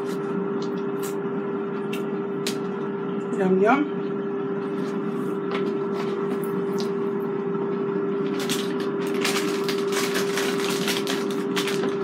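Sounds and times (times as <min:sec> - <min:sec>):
air fryer fan humming: 0:00.0 - 0:12.0
plastic bag crinkling: 0:08.2 - 0:12.0.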